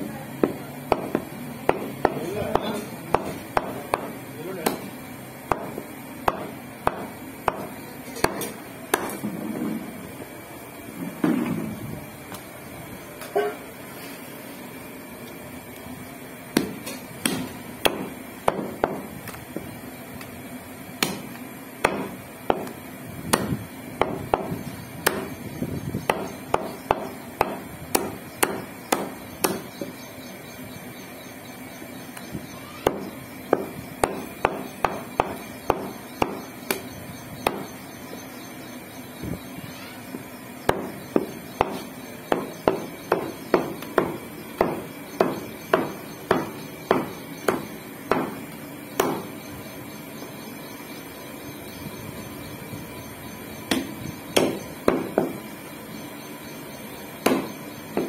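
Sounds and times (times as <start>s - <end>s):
cleaver chopping on wooden block: 0.4s - 4.8s, 5.5s - 9.2s, 16.6s - 19.1s, 21.0s - 25.4s, 26.0s - 29.9s, 32.8s - 36.8s, 37.4s - 37.7s, 40.7s - 48.4s, 49.0s - 49.3s, 53.7s - 55.4s, 57.2s - 58.0s.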